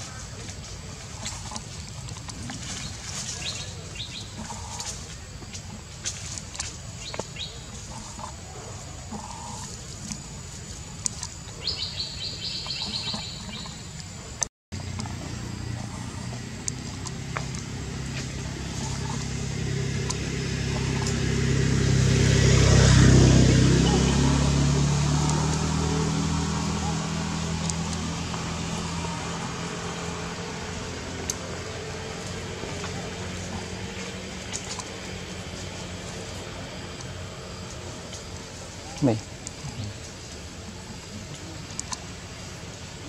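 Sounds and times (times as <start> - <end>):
low steady motor hum: 0.0 - 43.0.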